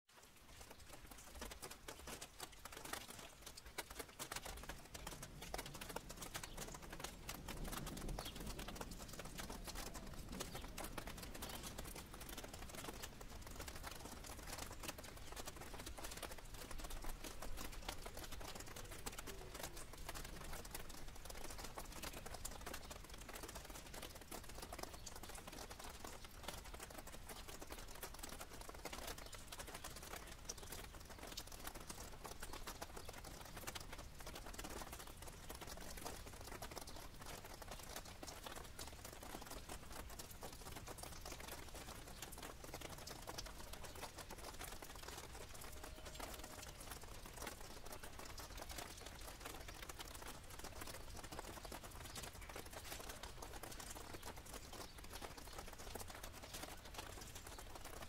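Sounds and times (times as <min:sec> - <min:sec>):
rainwater dripping on leaves: 0:00.1 - 0:58.0.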